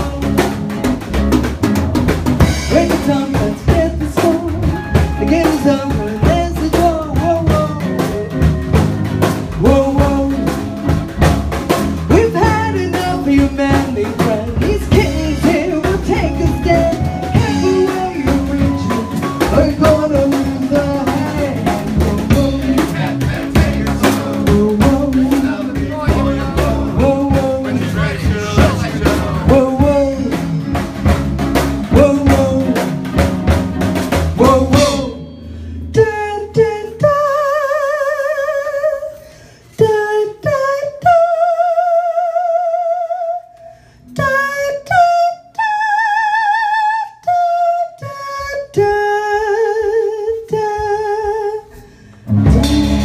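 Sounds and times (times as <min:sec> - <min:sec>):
electric guitar: 0:00.0 - 0:36.0, 0:51.7 - 0:53.0
drum kit: 0:00.0 - 0:37.2, 0:50.3 - 0:53.0
woman singing with vibrato: 0:02.6 - 0:08.3, 0:12.1 - 0:30.6.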